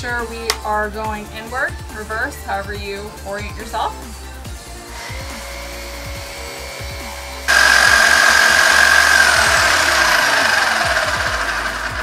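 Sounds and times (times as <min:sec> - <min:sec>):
electric winch motor whining: 0:04.6 - 0:12.0.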